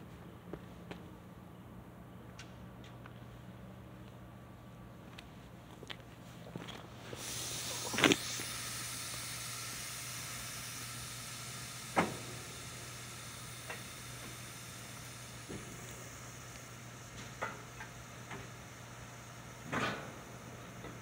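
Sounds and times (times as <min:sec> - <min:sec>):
air brakes hissing: 0:07.1 - 0:21.0.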